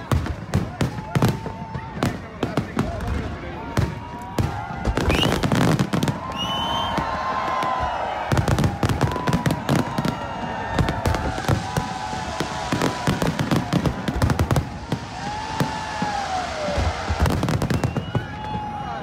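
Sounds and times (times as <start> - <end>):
fireworks bangs and crackles: 0.0 - 19.0
firework whistling: 4.6 - 19.0.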